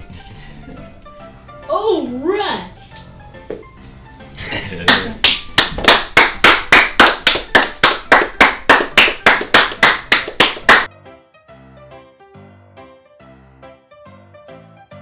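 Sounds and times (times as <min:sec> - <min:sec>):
soft keyboard music: 0:00.0 - 0:15.0
audience clapping in rhythm: 0:04.8 - 0:10.9.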